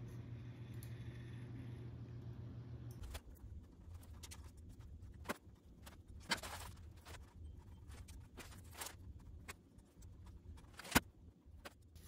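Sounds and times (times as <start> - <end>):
low steady hum: 0.0 - 12.0
rustling of wires: 3.0 - 12.0.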